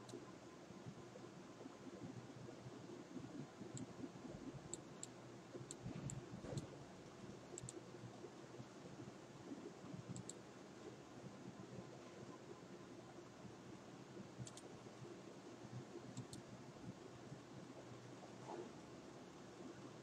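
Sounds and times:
low room hum: 0.0s - 20.0s
computer mouse clicks: 3.7s - 3.9s, 4.7s - 6.8s, 7.5s - 7.8s, 10.1s - 10.4s, 14.4s - 14.7s, 16.1s - 16.5s.

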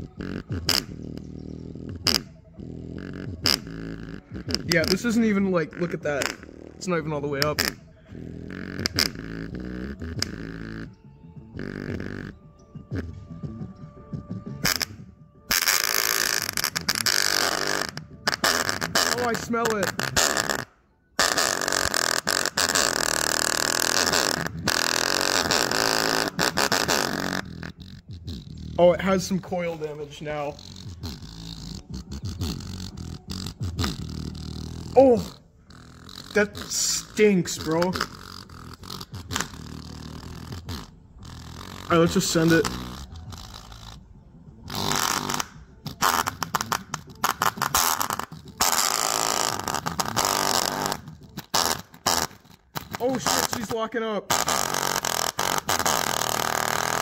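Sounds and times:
distorted speaker buzz: 0.0s - 57.0s.

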